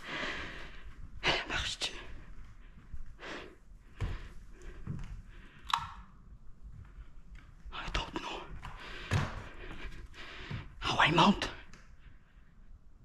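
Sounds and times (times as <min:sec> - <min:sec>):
knocks and scuffs of people moving: 0:00.0 - 0:05.5.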